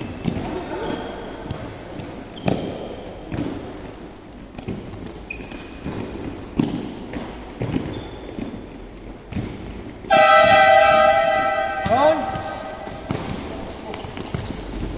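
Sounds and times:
balls bouncing and kicked: 0.0s - 14.9s
shoe squeaks: 0.2s - 1.4s, 2.0s - 3.2s, 5.0s - 8.7s, 11.3s - 14.9s.

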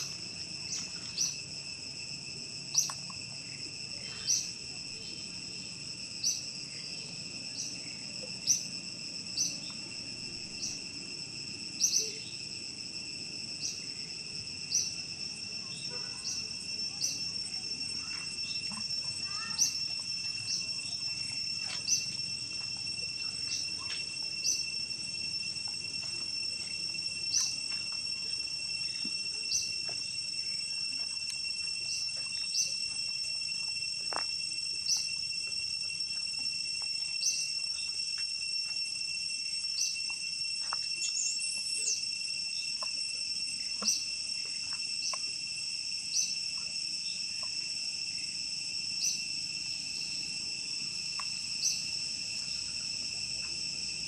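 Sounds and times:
insect drone: 0.0s - 54.0s.

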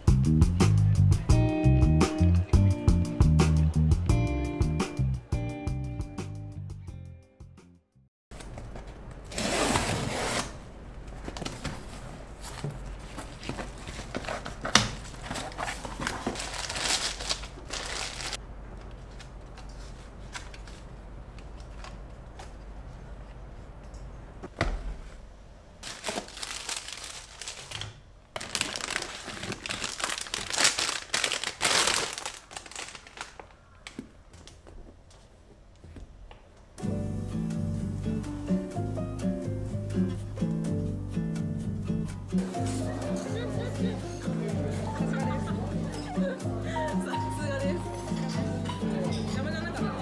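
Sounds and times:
cardboard flaps rustling: 8.3s - 20.9s
packaging crinkling: 11.4s - 18.4s, 25.8s - 34.0s.

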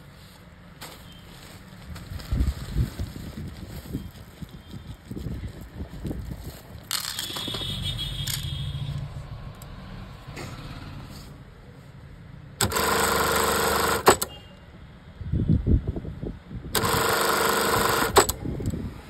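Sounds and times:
sewing machine stitching: 12.6s - 14.3s, 16.8s - 18.4s.

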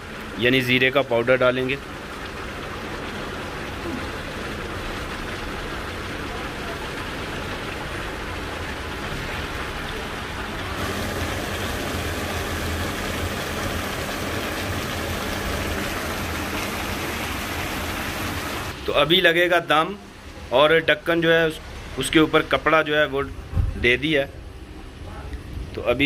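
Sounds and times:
pot of rice steaming and bubbling: 0.0s - 20.4s.

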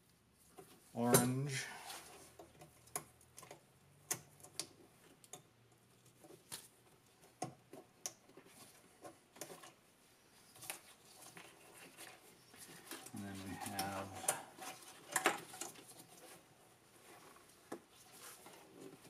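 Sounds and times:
small wire connectors clicking: 2.4s - 6.7s, 12.9s - 15.9s.

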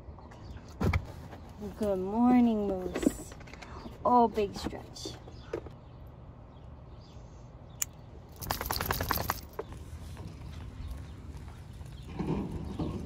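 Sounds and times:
rattling and clicking: 8.3s - 9.7s
dog paws on asphalt: 8.4s - 13.0s.

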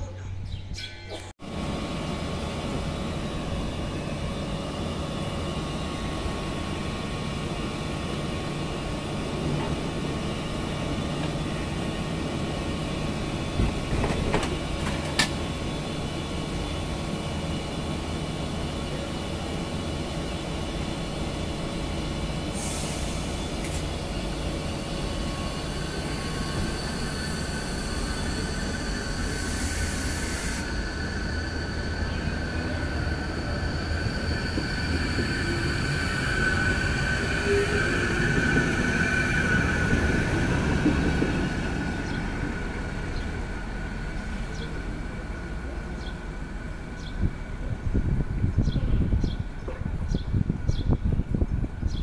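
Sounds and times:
train equipment humming: 0.0s - 51.9s
air hiss: 22.5s - 23.9s, 29.1s - 30.8s.

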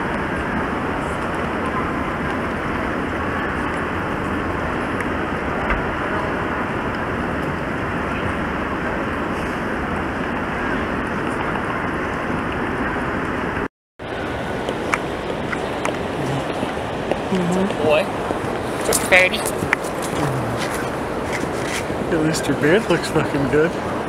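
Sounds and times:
busy airport terminal hall: 0.0s - 18.1s.

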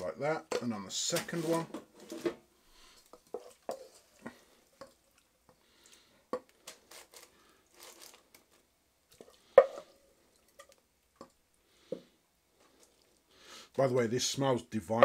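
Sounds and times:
wooden spoon scraping a bowl: 0.5s - 5.6s, 9.2s - 10.0s.

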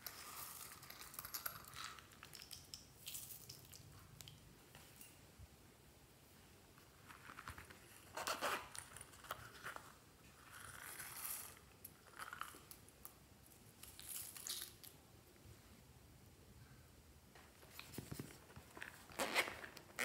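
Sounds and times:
crinkly rustling: 17.4s - 20.0s
zipper pulled open: 19.1s - 20.0s.

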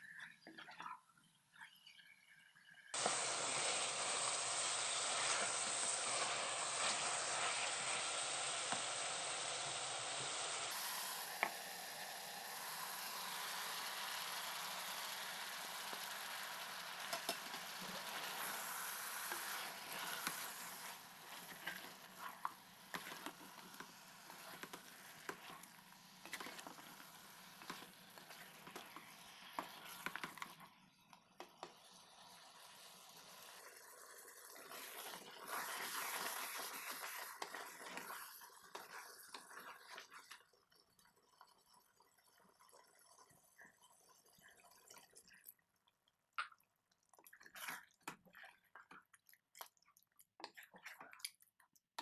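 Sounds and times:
food sizzling in a pot: 3.0s - 30.6s, 31.5s - 40.2s.

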